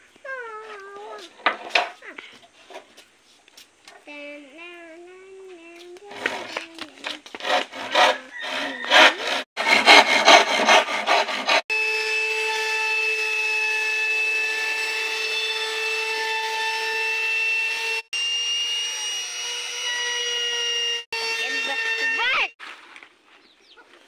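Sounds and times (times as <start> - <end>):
hand saw cutting wood: 5.8 - 18.1, 18.8 - 22.6
electric router whining: 11.7 - 22.6.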